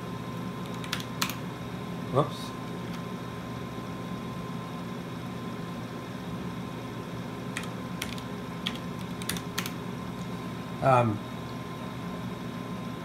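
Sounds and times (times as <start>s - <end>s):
computer equipment hum and fan: 0.0s - 13.0s
keystrokes on keyboard: 0.6s - 1.4s, 7.6s - 9.8s.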